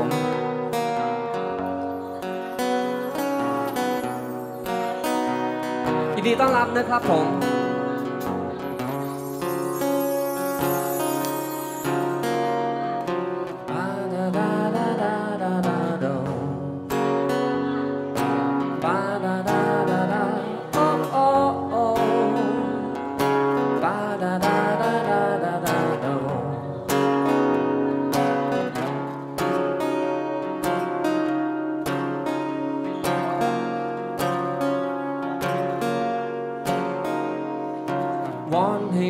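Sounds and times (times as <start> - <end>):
strummed acoustic guitar: 0.0 - 39.0
man singing: 5.9 - 8.2, 12.2 - 17.5, 18.2 - 27.4, 38.2 - 39.0.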